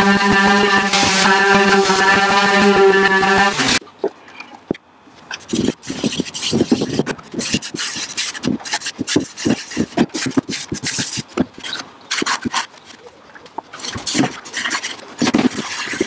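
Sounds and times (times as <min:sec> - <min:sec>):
cloth rag rubbing wood: 0:00.0 - 0:03.8.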